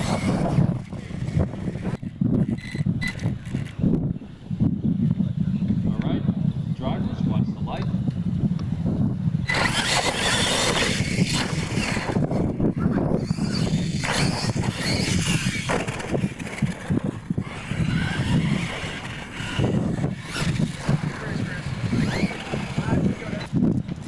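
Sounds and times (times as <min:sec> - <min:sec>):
electric motors whining: 0:00.0 - 0:05.0, 0:09.4 - 0:24.0
tyres scrabbling on dirt: 0:09.5 - 0:24.0
trucks thumping on landing: 0:13.2 - 0:21.0.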